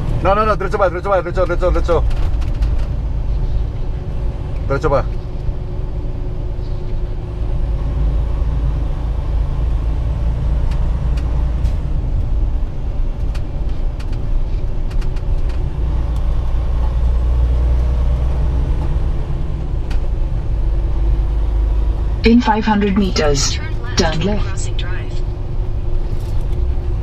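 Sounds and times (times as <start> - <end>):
truck engine and tyre rumble: 0.0 - 27.0.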